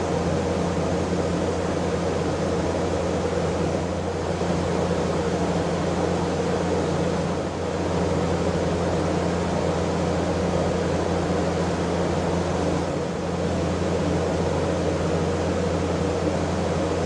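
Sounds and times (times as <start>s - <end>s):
ventilation fan humming: 0.0s - 17.0s.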